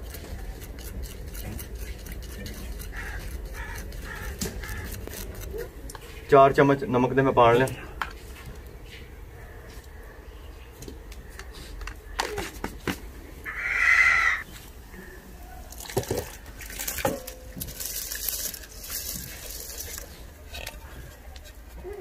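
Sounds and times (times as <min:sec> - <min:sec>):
chicken calling loudly: 0:13.4 - 0:14.4.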